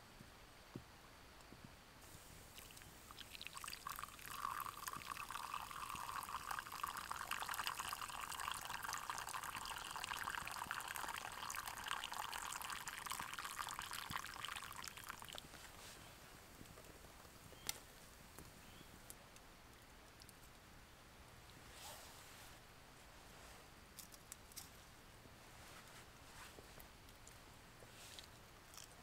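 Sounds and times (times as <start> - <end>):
liquid pouring into a cup: 2.1 - 15.5.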